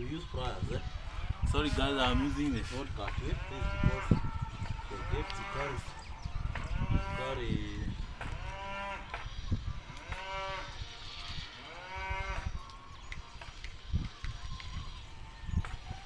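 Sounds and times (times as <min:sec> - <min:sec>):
farm animal calling: 0:00.8 - 0:10.8.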